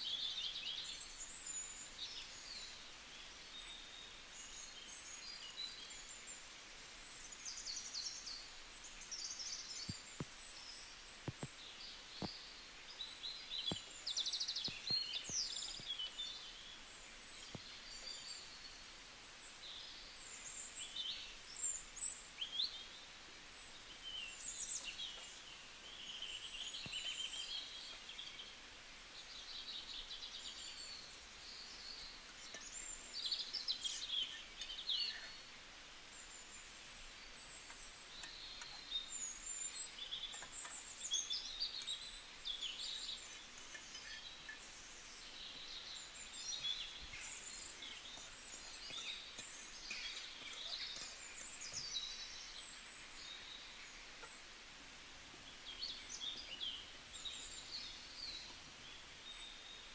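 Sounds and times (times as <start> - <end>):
birds chirping: 0.0 - 54.5
faint clicks: 11.2 - 11.6.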